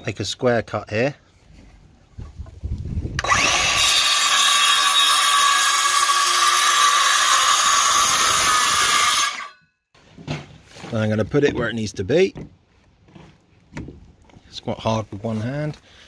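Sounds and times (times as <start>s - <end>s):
circular saw cutting board: 3.2s - 9.6s.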